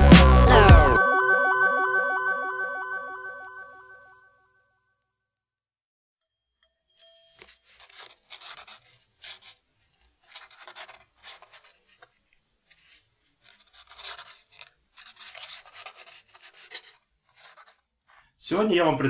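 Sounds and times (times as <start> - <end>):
pen scratching on paper: 7.4 - 17.9.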